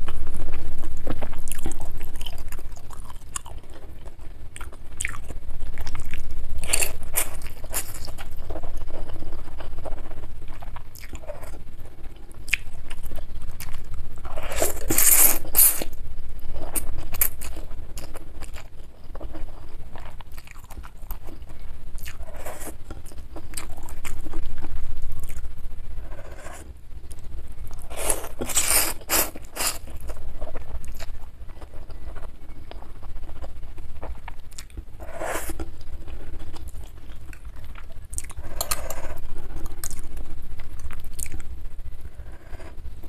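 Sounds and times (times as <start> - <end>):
chewing: 0.0 - 41.5.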